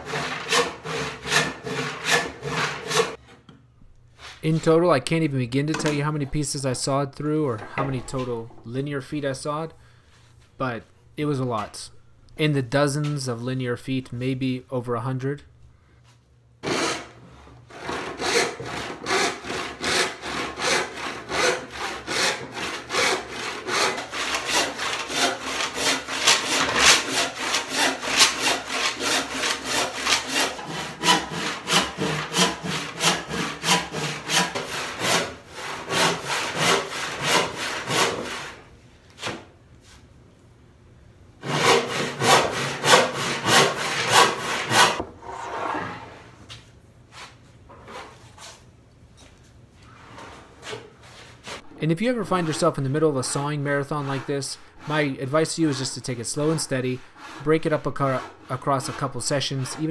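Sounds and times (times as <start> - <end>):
hand saw cutting board: 0.0 - 3.2, 16.6 - 38.6, 41.4 - 46.0, 53.6 - 59.9.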